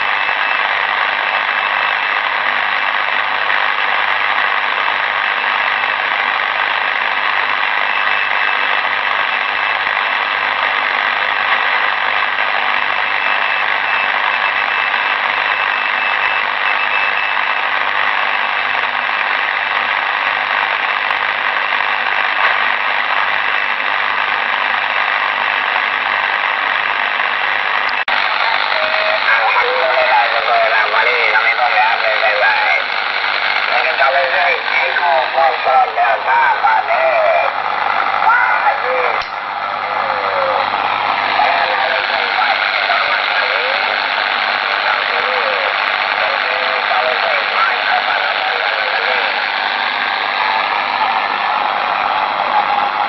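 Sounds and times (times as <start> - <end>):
shortwave radio noise hiss: 28.1 - 53.0.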